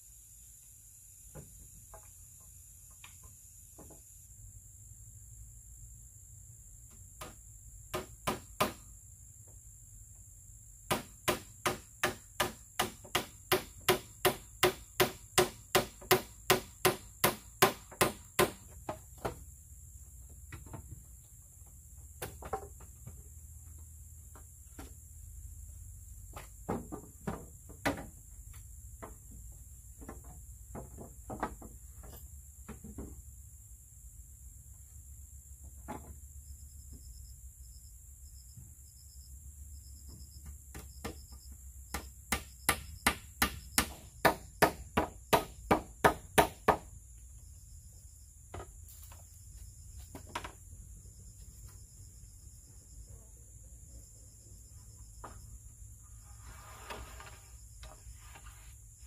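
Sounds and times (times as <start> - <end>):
high insect drone: 0.0 - 59.0
tool striking bamboo: 7.2 - 8.9, 10.9 - 19.4, 41.9 - 46.9.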